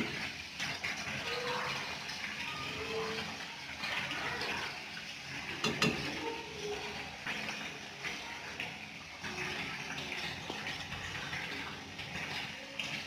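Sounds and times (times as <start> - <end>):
pot rattling: 0.0 - 8.2.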